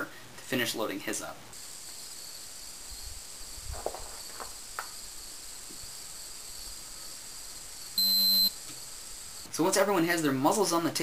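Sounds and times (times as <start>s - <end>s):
insects chirring: 1.6s - 9.5s.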